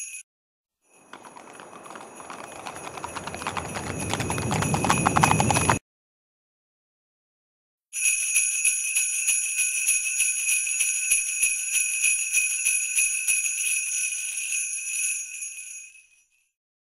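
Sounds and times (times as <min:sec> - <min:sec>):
sleigh bells jingling: 0:00.9 - 0:05.8, 0:08.0 - 0:16.0.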